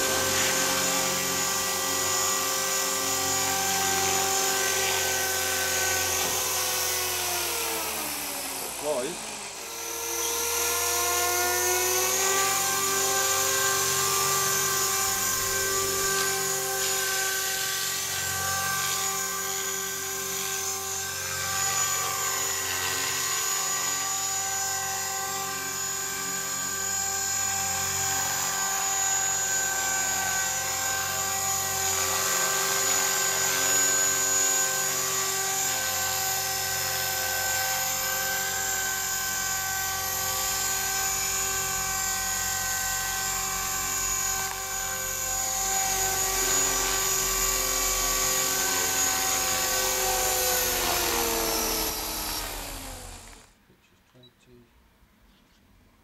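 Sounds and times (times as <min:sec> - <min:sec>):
model helicopter motor whine: 0:00.0 - 0:53.6.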